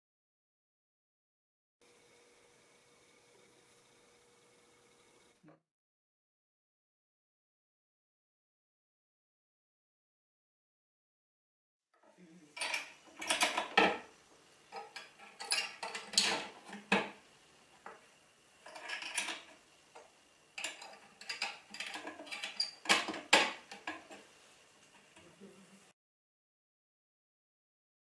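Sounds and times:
metal tubes clinking on steel bars: 0:14.7 - 0:16.5, 0:20.6 - 0:24.0.

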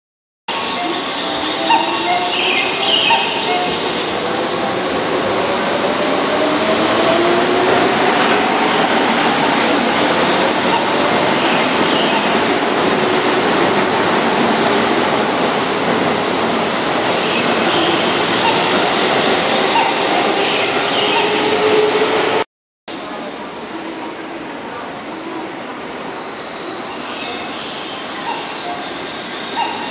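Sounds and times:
wheels rumbling on rails: 0:02.8 - 0:22.4.

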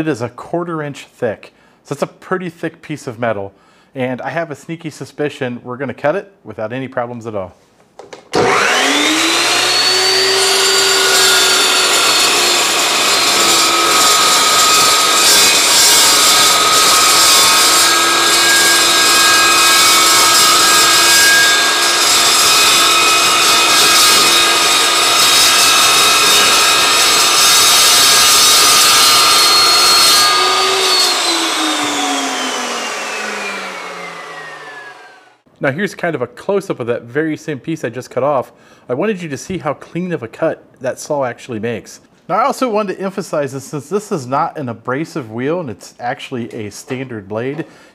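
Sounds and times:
chop saw motor whine: 0:08.3 - 0:35.4
blade cutting through steel: 0:08.4 - 0:35.2.

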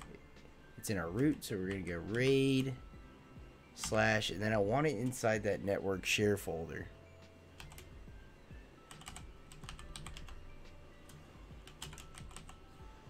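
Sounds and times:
keyboard typing: 0:07.6 - 0:07.9, 0:08.9 - 0:10.4, 0:11.1 - 0:12.6.

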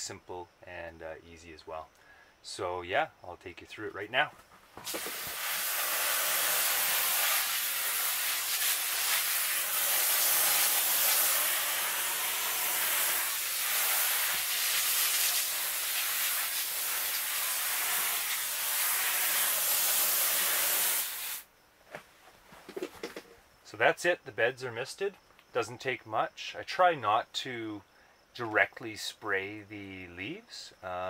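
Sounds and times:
hose nozzle spraying mist: 0:04.8 - 0:21.4.

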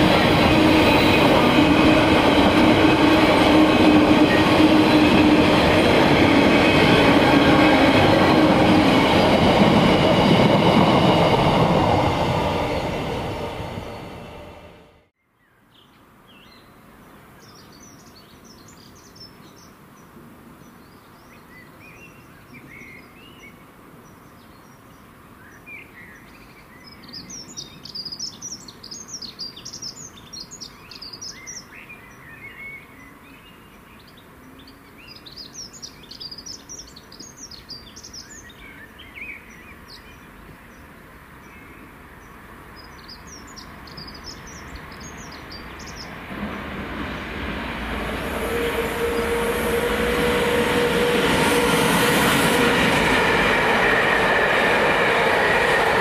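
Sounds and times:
train approaching: 0:00.0 - 0:15.1, 0:35.3 - 0:56.0
songbirds chirping and trilling: 0:15.2 - 0:47.9.

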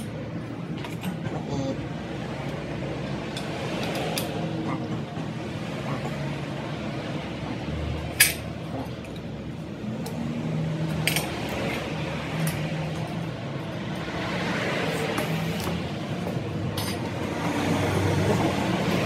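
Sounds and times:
metal tools clinking: 0:03.3 - 0:04.4, 0:08.1 - 0:09.3, 0:10.9 - 0:13.2, 0:16.6 - 0:17.2.

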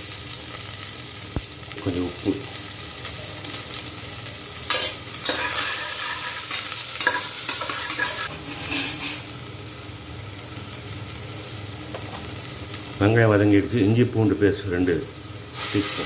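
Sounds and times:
onion sizzling in oil: 0:00.0 - 0:16.0
spatula scraping and clicking on pot: 0:04.7 - 0:09.2.

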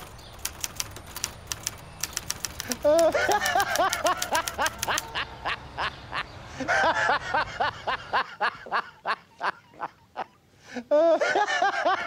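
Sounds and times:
typewriter key clicks: 0:00.0 - 0:05.1.

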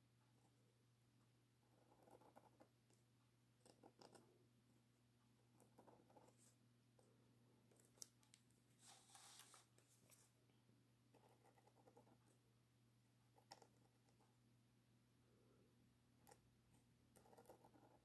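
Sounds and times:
pen nib scratching on paper: 0:01.6 - 0:03.0, 0:03.6 - 0:04.3, 0:05.5 - 0:07.1, 0:11.1 - 0:12.4, 0:13.3 - 0:14.3, 0:16.2 - 0:16.4, 0:17.1 - 0:18.0.

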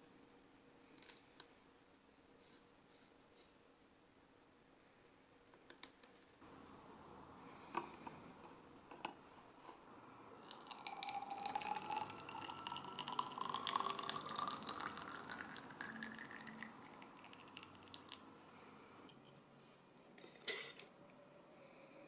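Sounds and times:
water pouring into a tank: 0:10.4 - 0:18.2.

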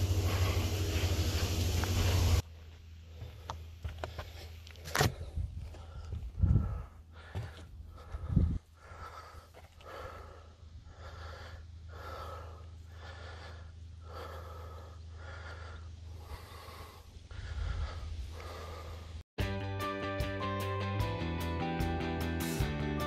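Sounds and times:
person breathing hard: 0:00.0 - 0:02.4, 0:03.0 - 0:19.2
steady low rumble: 0:00.0 - 0:04.4
music: 0:19.4 - 0:23.0.

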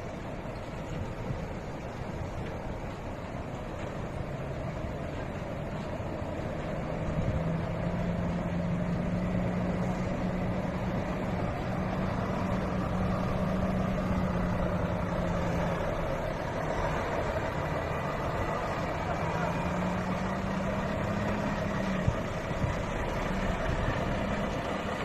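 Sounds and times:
lorry diesel engine droning: 0:00.0 - 0:25.0.

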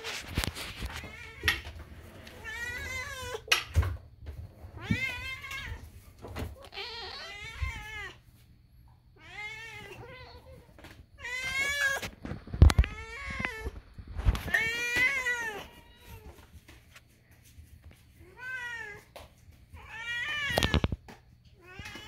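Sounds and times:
cat meowing: 0:06.5 - 0:08.2.

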